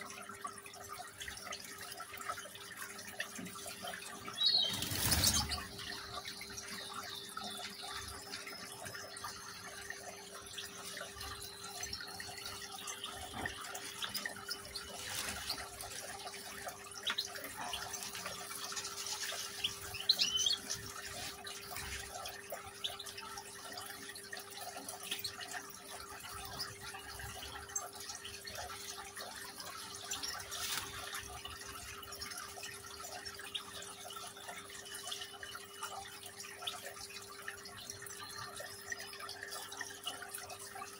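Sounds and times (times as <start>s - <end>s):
water trickling in fountain: 0.0s - 40.9s
bird chirps: 4.3s - 9.7s, 19.3s - 20.8s.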